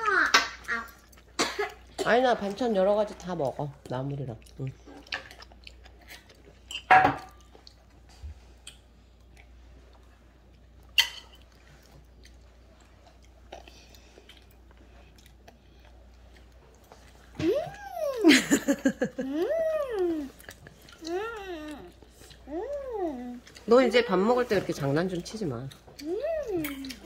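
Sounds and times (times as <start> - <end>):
child chewing: 0.0 - 27.0.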